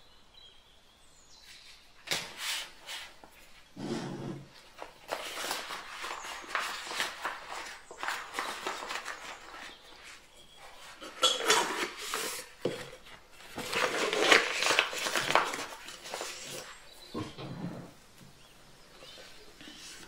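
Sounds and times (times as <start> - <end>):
plastic bag rustling: 2.3 - 17.4.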